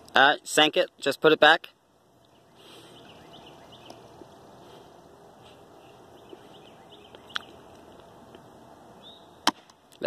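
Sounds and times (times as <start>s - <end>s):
faint bird chirps: 2.2s - 4.8s, 9.0s - 9.4s.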